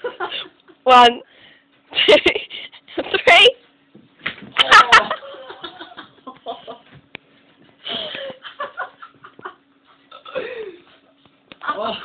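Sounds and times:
person breathing: 1.3s - 1.7s
person laughing: 4.6s - 6.8s, 7.8s - 9.6s.

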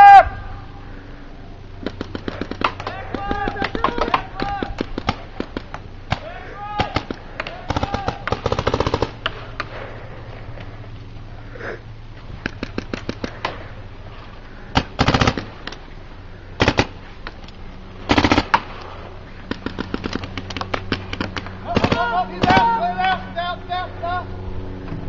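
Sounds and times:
paintball markers firing: 1.8s - 9.8s, 12.4s - 13.6s, 14.7s - 15.8s, 16.6s - 22.7s.

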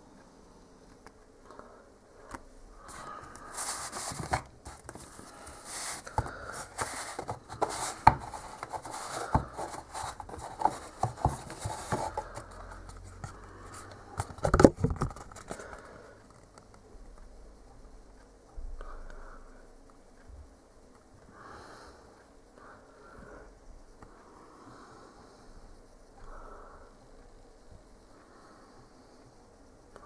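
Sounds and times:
cardboard rubbing and scraping: 3.3s - 13.3s
small knocks on cardboard: 5.8s - 12.4s.

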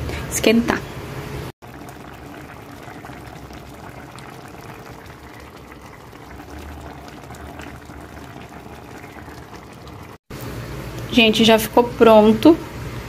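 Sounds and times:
stew bubbling with small pops: 1.6s - 11.1s.

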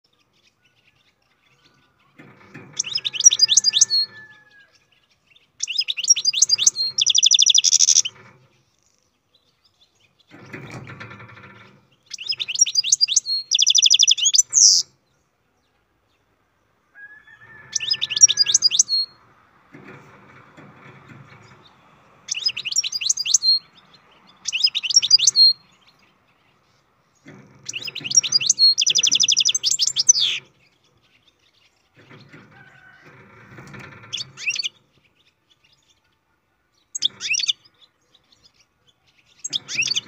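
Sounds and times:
goldfinch twittering song: 0.1s - 8.6s, 9.5s - 15.0s, 17.6s - 19.2s, 22.3s - 32.4s, 33.8s - 36.0s, 36.8s - 40.0s.

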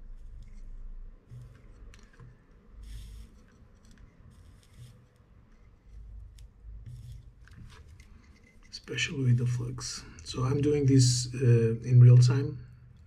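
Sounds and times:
soldering iron scraping: 0.0s - 10.9s
hissy scrapes: 1.3s - 6.1s.

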